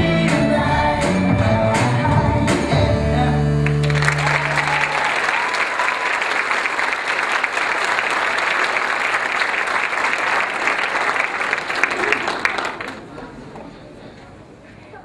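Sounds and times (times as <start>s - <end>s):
audience applause: 3.6s - 13.7s.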